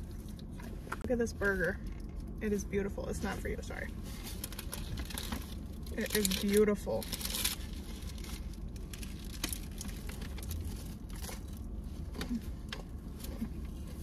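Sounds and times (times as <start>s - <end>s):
low steady hum: 0.0s - 14.0s
paper wrapper crinkling: 4.1s - 11.8s.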